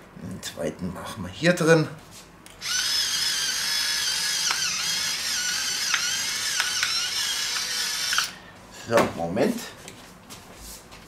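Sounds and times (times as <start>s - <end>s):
pepper mill motor whine: 2.6s - 8.6s.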